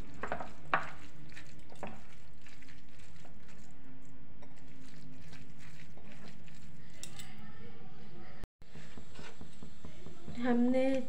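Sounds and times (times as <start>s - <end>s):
hand squeezing wet mash: 0.0s - 7.1s.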